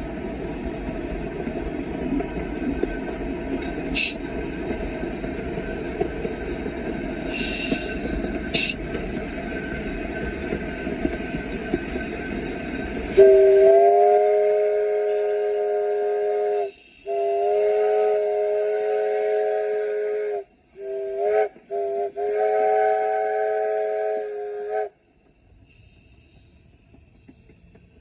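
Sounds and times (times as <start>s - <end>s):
train rumble and clatter: 0.0s - 28.0s
chime steam whistle: 13.1s - 25.0s.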